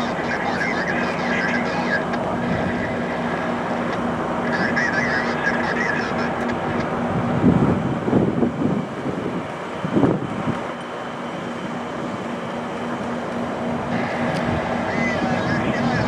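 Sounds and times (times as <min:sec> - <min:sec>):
diesel locomotive running: 0:00.0 - 0:16.0
wind gusts on microphone: 0:06.6 - 0:10.7, 0:13.8 - 0:16.0.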